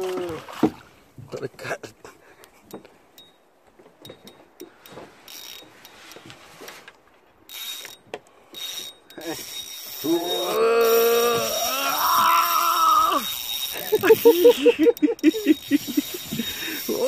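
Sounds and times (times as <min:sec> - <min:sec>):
fishing reel whirring and clicking: 0:05.3 - 0:06.0, 0:07.5 - 0:17.0.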